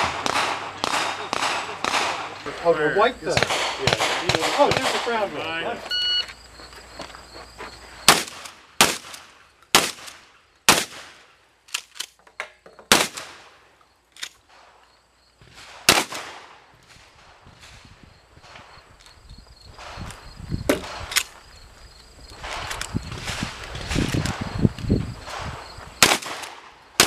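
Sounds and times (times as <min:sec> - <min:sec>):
shotgun shots: 0:00.0 - 0:02.4, 0:03.3 - 0:05.3, 0:08.1 - 0:11.3, 0:12.9 - 0:13.5, 0:15.5 - 0:17.4, 0:25.3 - 0:27.0.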